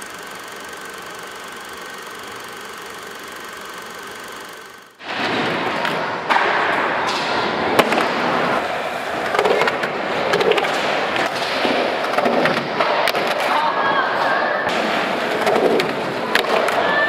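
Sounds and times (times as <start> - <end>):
skateboard wheels rolling: 5.0 - 13.5
skateboard clacks and knocks: 5.1 - 13.6, 14.7 - 17.0.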